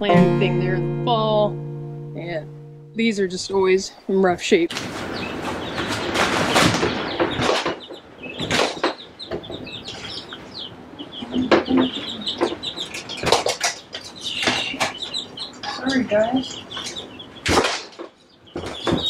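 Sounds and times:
baby chicks peeping: 0.0 - 19.0
loud rustles and knocks: 4.7 - 9.6.

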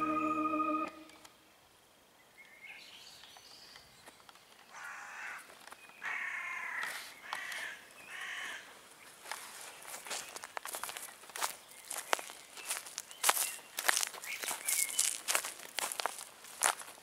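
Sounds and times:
crow cawing: 4.7 - 5.4, 6.0 - 8.6.

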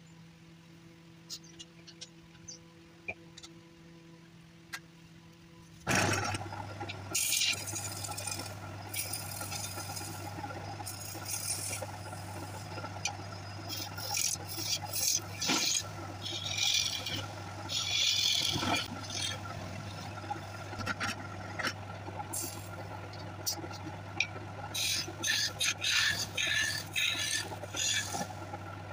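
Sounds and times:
steady low hum: 0.0 - 28.9
chisel scraping wood on lathe: 5.9 - 23.9, 24.7 - 28.6.

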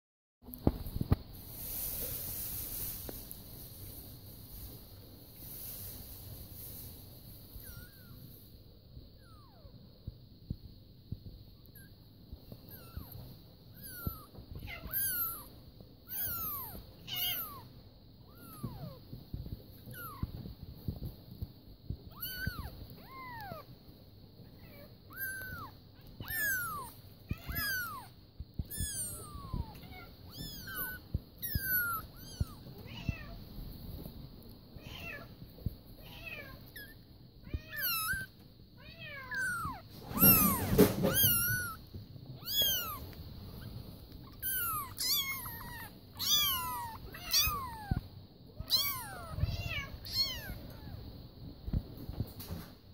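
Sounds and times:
kittens mewing: 13.8 - 19.0, 22.1 - 23.7, 24.6 - 33.4, 36.0 - 51.0.

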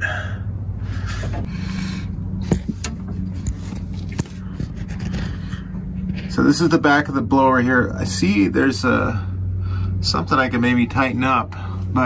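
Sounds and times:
steady low hum: 0.0 - 12.0
phone handling scraping: 2.4 - 6.3.

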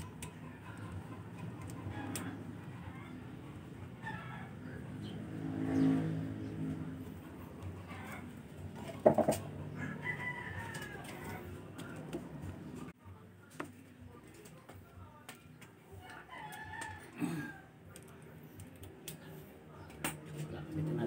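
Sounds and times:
faint chicken calls: 0.2 - 6.0, 7.6 - 12.9.

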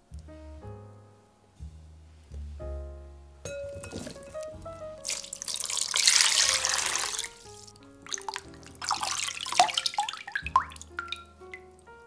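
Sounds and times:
soft background music: 0.0 - 12.0
water splashing and dripping: 3.8 - 11.8
water pouring into a bowl: 3.9 - 11.3.

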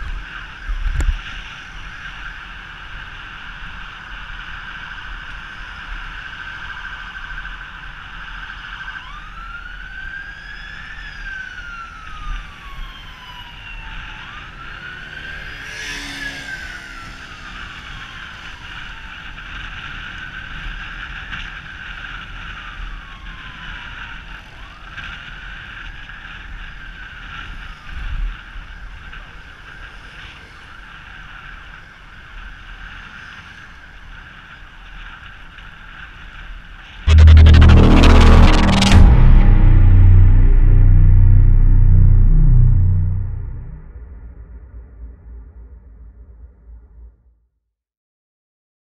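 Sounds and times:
emergency siren wailing: 9.0 - 15.3.

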